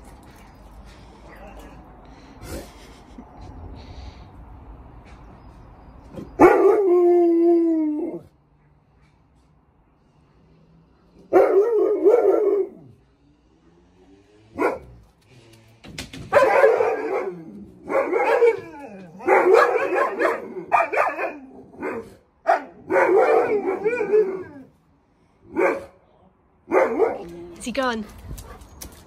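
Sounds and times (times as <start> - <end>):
dog barking and howling: 6.4 - 8.3, 11.3 - 12.9, 16.3 - 24.7, 26.7 - 27.3.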